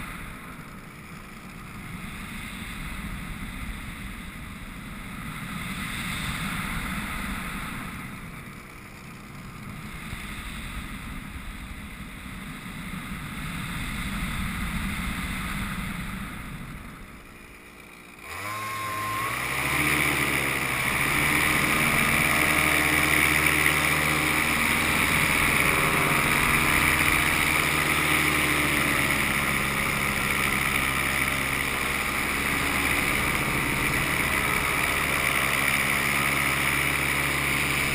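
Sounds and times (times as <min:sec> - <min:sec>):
two-stroke engine revving: 0:00.0 - 0:37.9
wind rushing over microphone: 0:09.4 - 0:17.4, 0:19.6 - 0:37.9.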